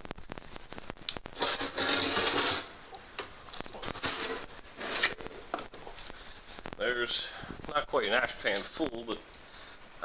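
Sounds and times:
metal scraping on metal: 1.4s - 2.8s, 3.8s - 5.5s.

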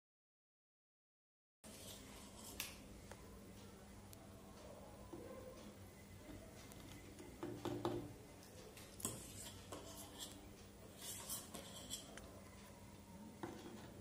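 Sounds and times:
metal spoon scraping metal plate: 9.0s - 12.2s.

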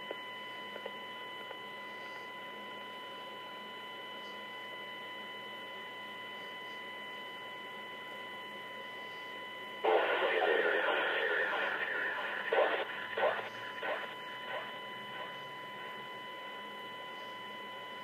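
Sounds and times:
electrical hum and whine: 0.0s - 18.0s
radio static burst: 9.8s - 15.6s
radio crackles: 9.8s - 16.0s.

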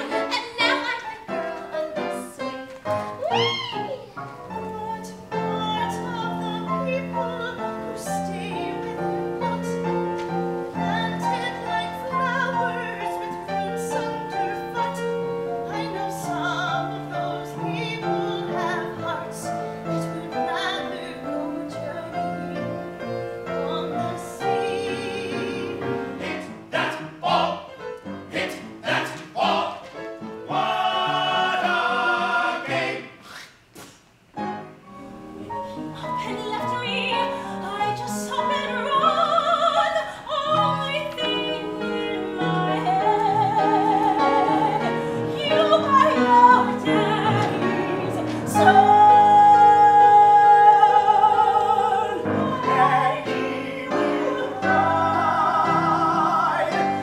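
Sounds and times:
piano: 0.0s - 57.0s
cast singing in chorus: 24.4s - 33.3s, 51.0s - 57.0s.

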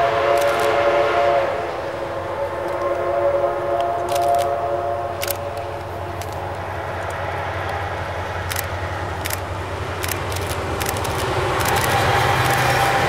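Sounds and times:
steam locomotive rumble: 0.0s - 13.0s
sharp clicks: 0.4s - 0.8s, 4.0s - 4.5s, 5.2s - 7.8s, 8.4s - 12.8s.

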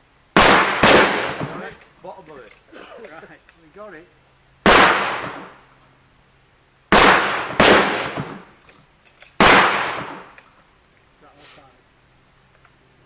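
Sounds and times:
shotgun shots: 0.4s - 1.8s, 4.6s - 5.6s, 6.9s - 8.6s, 9.4s - 10.4s.

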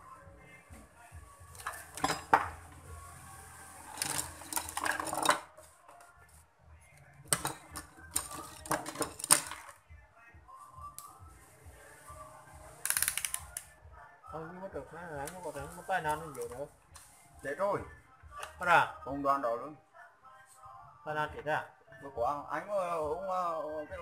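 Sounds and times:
metal tools clattering: 1.6s - 2.4s, 3.9s - 5.4s.

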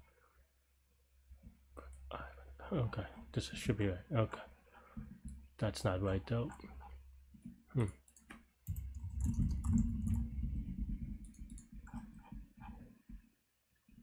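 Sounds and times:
keyboard typing: 7.8s - 12.8s.

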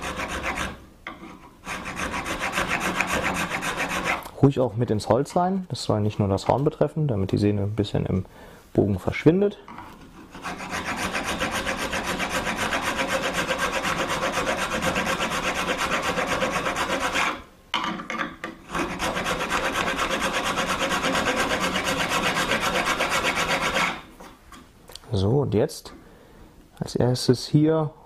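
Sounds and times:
rasp filing wood: 0.0s - 4.2s, 10.0s - 17.4s, 18.7s - 24.1s.

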